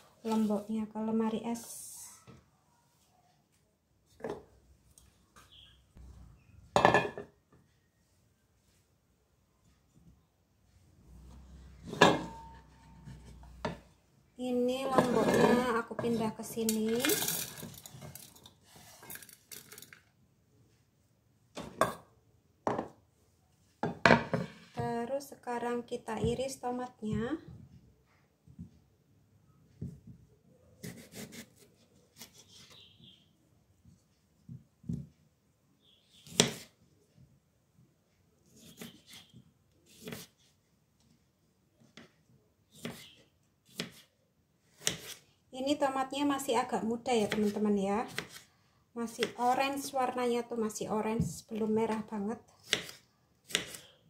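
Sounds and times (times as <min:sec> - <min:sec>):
knife cutting on wooden board: 0:30.8 - 0:31.6, 0:39.9 - 0:40.4, 0:42.8 - 0:44.0, 0:44.7 - 0:45.2, 0:52.6 - 0:53.9.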